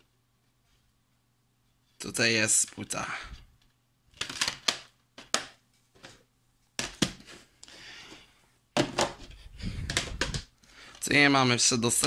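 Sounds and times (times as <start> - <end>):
plastic case clicks and knocks: 9.8 - 10.5.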